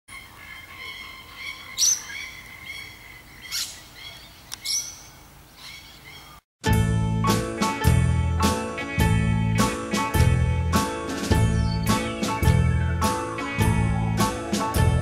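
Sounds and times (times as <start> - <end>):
bird chirps: 0.1 - 6.4, 11.4 - 12.1
rising bird calls: 0.1 - 6.4, 11.4 - 14.6.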